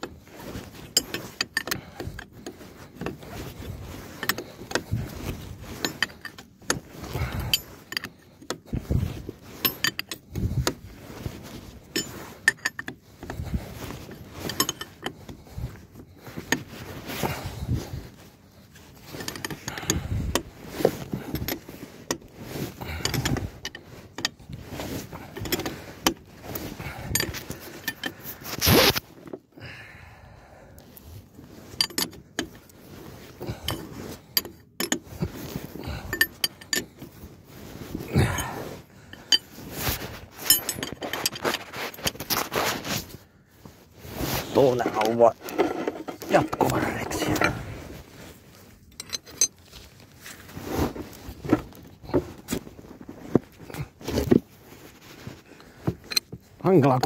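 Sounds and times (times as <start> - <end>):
metallic clicks and knocks of hand tools: 0.9 - 2.3.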